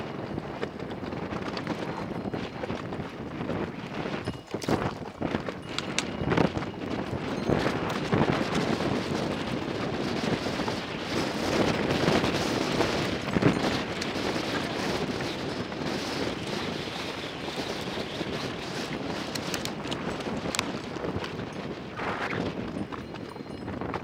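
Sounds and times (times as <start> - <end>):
wind buffeting microphone: 0.0 - 24.0
plastic box clicks and rattles: 4.4 - 6.2, 19.2 - 21.3.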